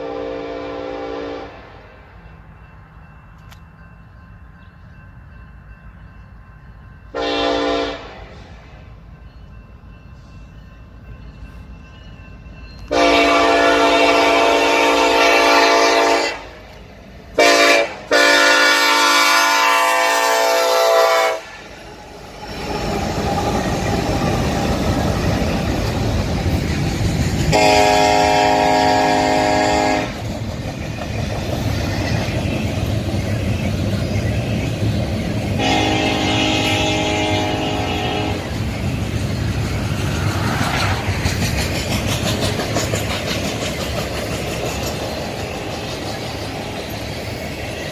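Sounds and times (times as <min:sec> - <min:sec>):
locomotive air horn blasts: 0:00.0 - 0:01.8, 0:07.1 - 0:08.4, 0:12.9 - 0:16.6, 0:17.4 - 0:21.6, 0:27.5 - 0:30.2, 0:35.6 - 0:38.5
rumble of freight cars rolling: 0:00.0 - 0:47.9.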